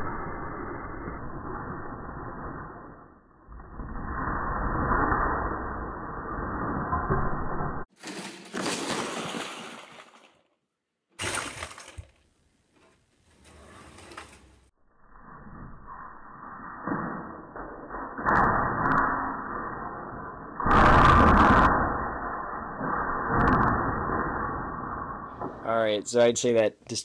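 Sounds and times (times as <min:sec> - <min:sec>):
plastic bricks crashing and clattering: 0:07.9 - 0:10.4, 0:11.2 - 0:12.3.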